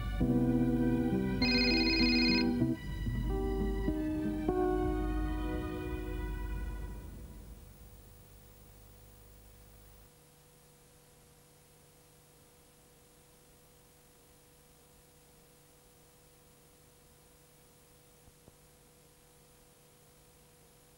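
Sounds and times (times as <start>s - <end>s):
faint steady hiss: 0.0s - 20.9s.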